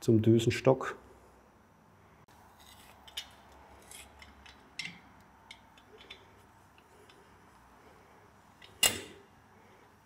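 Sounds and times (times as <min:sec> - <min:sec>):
small metal clicks and ticks: 0:03.0 - 0:07.2.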